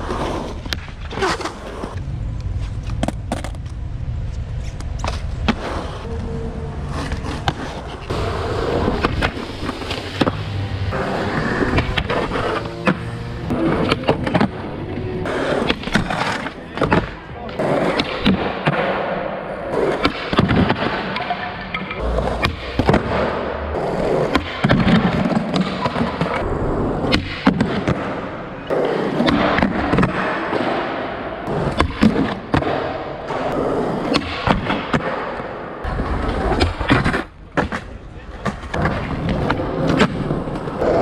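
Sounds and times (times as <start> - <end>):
skateboard wheels rolling on concrete: 0.0 - 41.0
skateboard clacks: 27.1 - 41.0.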